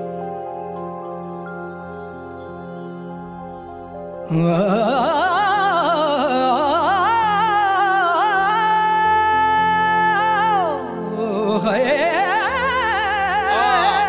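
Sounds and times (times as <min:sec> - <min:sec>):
man singing with heavy vibrato: 0:04.3 - 0:14.0.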